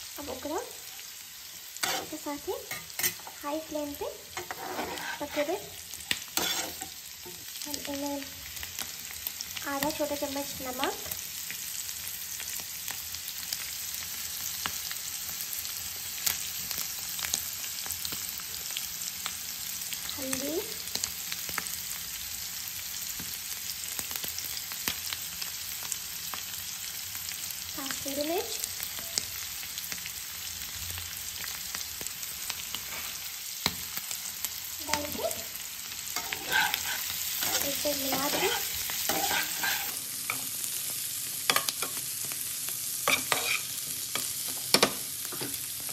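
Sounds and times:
potatoes sizzling in oil: 0.0s - 45.9s
spatula scraping pan: 1.8s - 3.4s, 4.2s - 7.4s, 32.8s - 33.8s, 36.2s - 40.4s, 43.0s - 43.8s.

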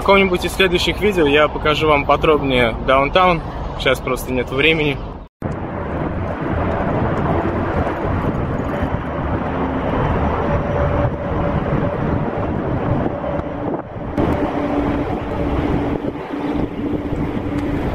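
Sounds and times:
vehicle engine noise: 0.0s - 17.9s
wind buffeting microphone: 5.0s - 17.9s.

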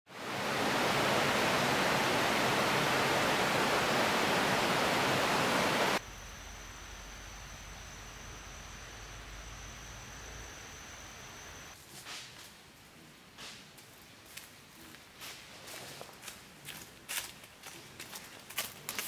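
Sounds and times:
faint high whine: 0.1s - 11.8s
quiet hiss: 0.2s - 17.4s.

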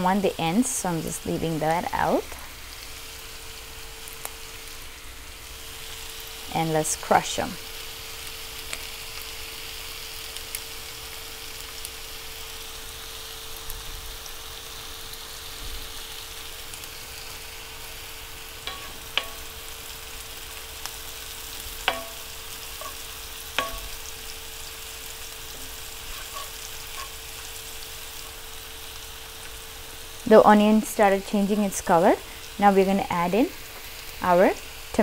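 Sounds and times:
shallots sizzling in hot oil: 0.0s - 35.0s
utensil clinking against pan: 21.9s - 23.0s, 23.6s - 24.0s.

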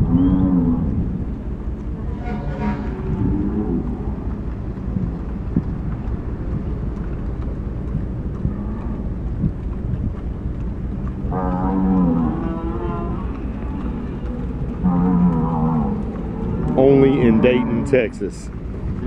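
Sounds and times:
steady low rumble: 0.0s - 19.0s
cattle mooing: 1.9s - 4.4s, 8.4s - 9.1s, 11.2s - 18.4s.

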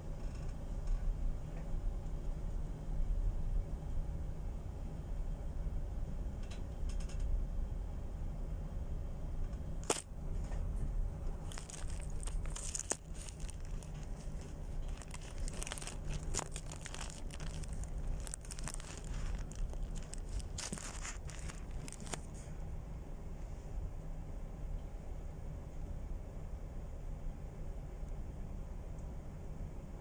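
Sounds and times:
low hum: 0.0s - 30.0s
steady low rumble: 0.0s - 30.0s
crackling and rustling on microphone: 9.5s - 22.5s.

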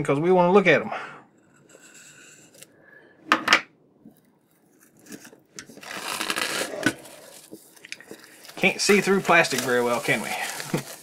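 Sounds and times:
plastic film rustling: 4.6s - 11.0s
knife slicing plastic wrap: 5.8s - 7.4s.

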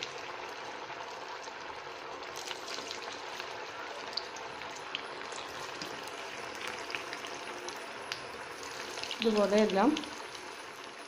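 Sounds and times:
food deep-frying in oil: 0.0s - 11.0s.

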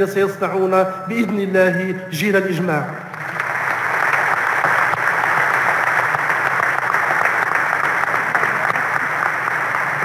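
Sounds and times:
audience applauding: 3.1s - 10.0s.

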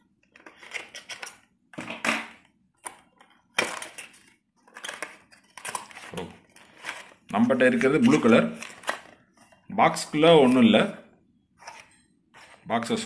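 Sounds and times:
plastic tray rustling and scraping: 3.9s - 9.5s, 11.6s - 13.0s.

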